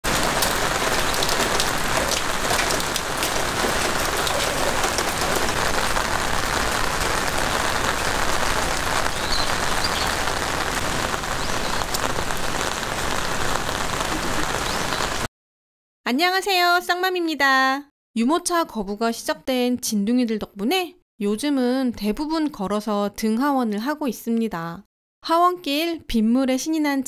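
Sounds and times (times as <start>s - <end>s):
rain hissing on pavement: 0.0s - 15.3s
raindrops tapping: 0.0s - 15.3s.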